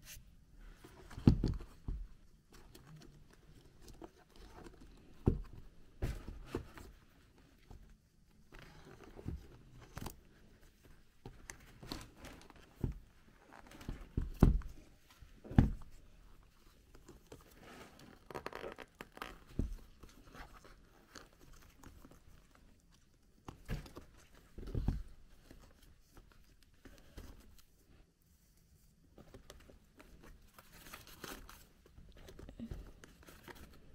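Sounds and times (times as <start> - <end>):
paper rustling: 29.2 - 33.9.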